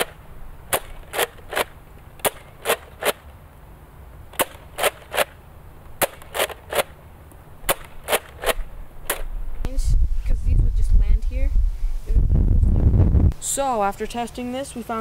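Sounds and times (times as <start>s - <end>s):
toy dart blaster plastic clacks: 0.0s - 3.2s, 4.4s - 5.4s, 6.0s - 7.0s, 7.7s - 9.3s.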